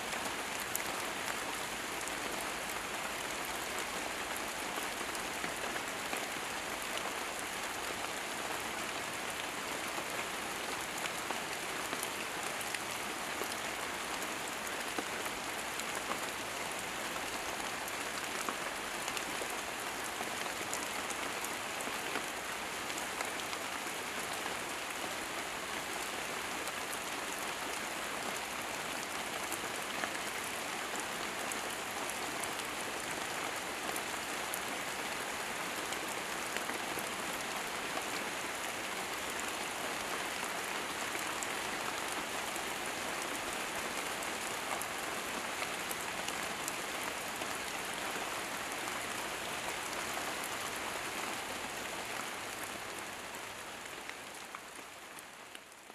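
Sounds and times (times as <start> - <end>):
rain falling on foliage: 0.0 - 55.9.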